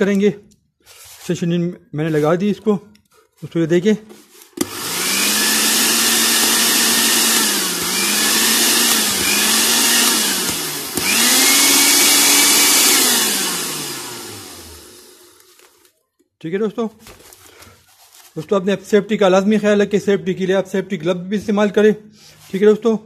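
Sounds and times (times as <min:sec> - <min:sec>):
blender motor whine: 0:04.6 - 0:15.7.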